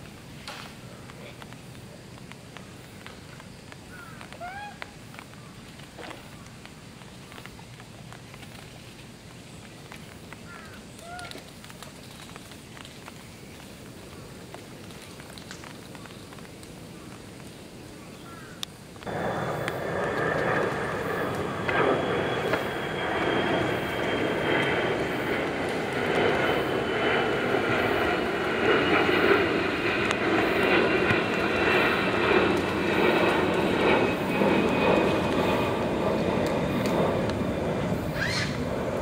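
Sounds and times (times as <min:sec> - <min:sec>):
mechanical drone with high whine: 0:19.0 - 0:39.0.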